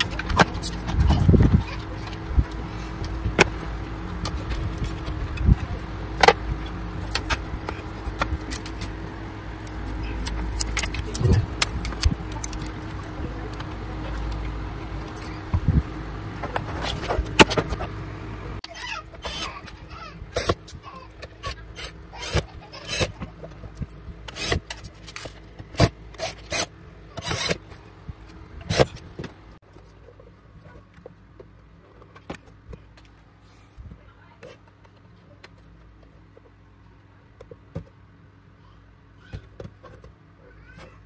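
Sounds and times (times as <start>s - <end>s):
clicks and knocks from handling parts: 9.6s - 15.6s.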